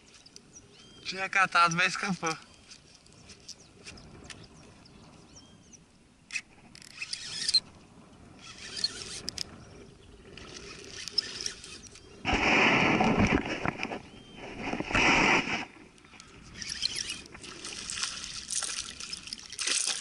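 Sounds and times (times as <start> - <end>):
fishing reel whirring: 6.3 - 7.7, 8.3 - 12.3, 15.6 - 20.0
small clicks: 8.4 - 9.6.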